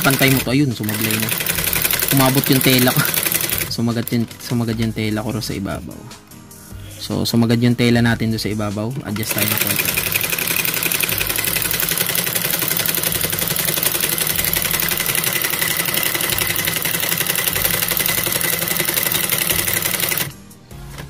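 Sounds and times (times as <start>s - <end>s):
sewing machine stitching: 0.0s - 4.9s, 9.1s - 20.4s.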